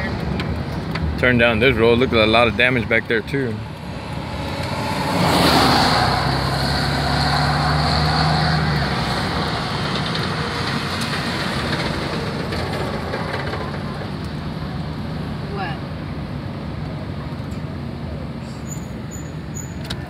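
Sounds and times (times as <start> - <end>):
car engine hum: 0.0 - 20.0
road noise: 0.0 - 20.0.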